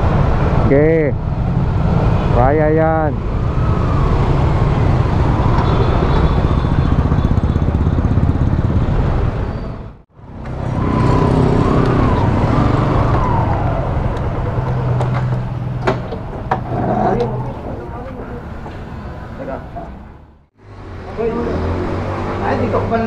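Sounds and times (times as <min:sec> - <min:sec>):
motorcycle engine running: 0:05.9 - 0:09.4.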